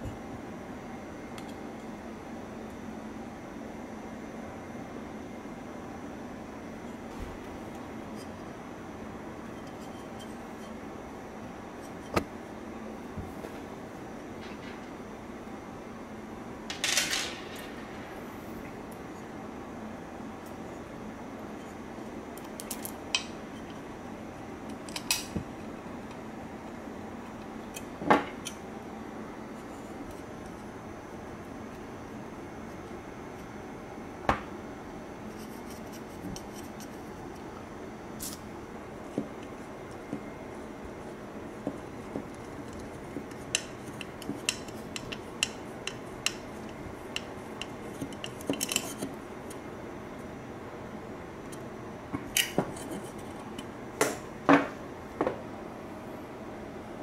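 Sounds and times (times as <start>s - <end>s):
small parts clicking on a plate: 42.7s - 49.6s.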